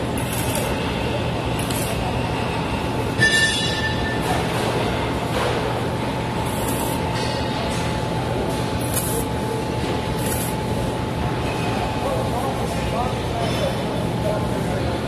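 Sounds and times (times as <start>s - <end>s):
shop noise: 0.0s - 15.0s
arc welding crackling hiss: 0.1s - 0.9s, 1.5s - 2.2s, 6.4s - 7.0s, 8.8s - 9.4s, 10.2s - 10.6s.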